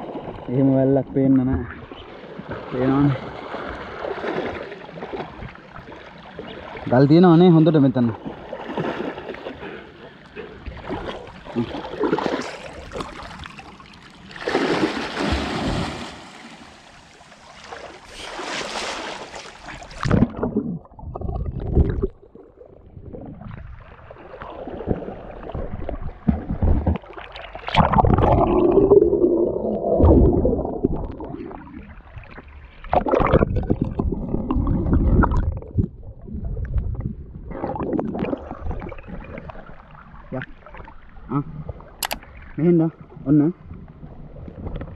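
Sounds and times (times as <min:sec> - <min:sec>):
river water splashing and gurgling: 0:01.7 - 0:20.9, 0:21.6 - 0:35.7.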